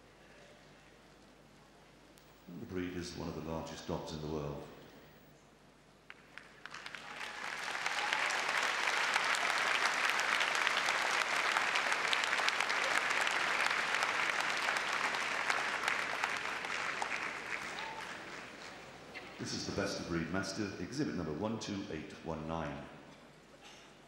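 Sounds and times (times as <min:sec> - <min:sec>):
arena crowd applauding: 0:06.0 - 0:19.6.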